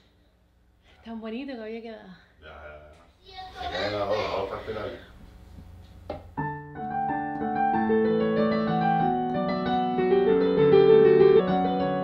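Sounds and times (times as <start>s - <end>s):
digital piano chords: 6.4s - 12.0s.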